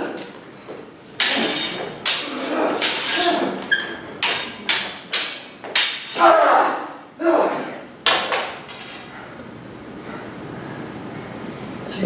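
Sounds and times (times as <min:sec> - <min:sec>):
swords clashing: 0:01.2 - 0:06.9, 0:08.0 - 0:09.1.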